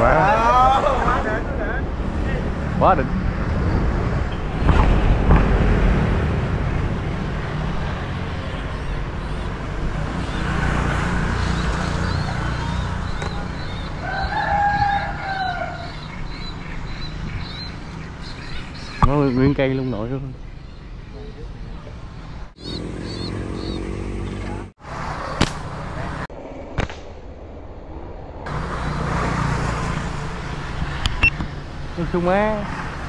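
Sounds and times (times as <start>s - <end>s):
rooster crowing: 14.0s - 16.0s.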